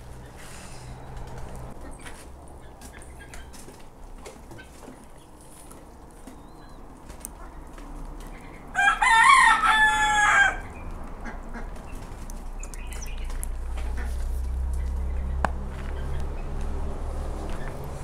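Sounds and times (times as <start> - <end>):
rooster crowing: 8.7 - 10.7.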